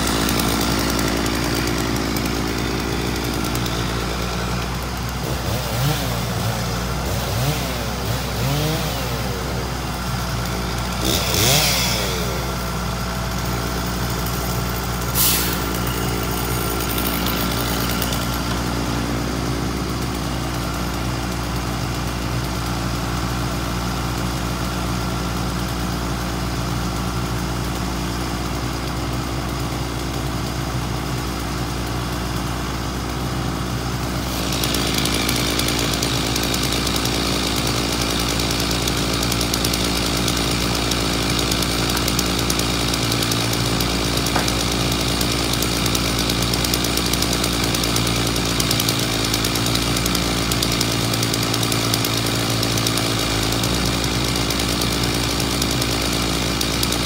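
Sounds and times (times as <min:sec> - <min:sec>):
truck engine running: 0:00.0 - 0:57.0
rushing hydraulic hiss: 0:15.1 - 0:15.8.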